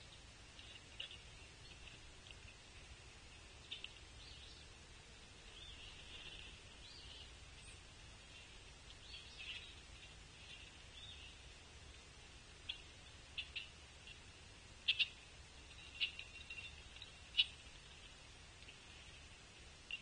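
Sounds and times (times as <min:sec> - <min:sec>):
soft bird chirps: 0:00.0 - 0:04.8, 0:05.4 - 0:20.0
steady high hiss: 0:00.0 - 0:20.0.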